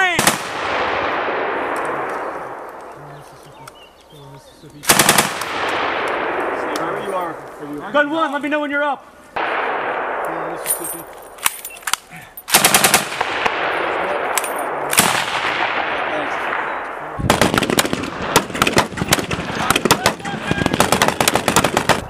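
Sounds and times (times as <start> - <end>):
automatic gunfire with echo: 0.2 - 2.8, 4.8 - 7.0, 9.4 - 11.4, 12.5 - 22.0.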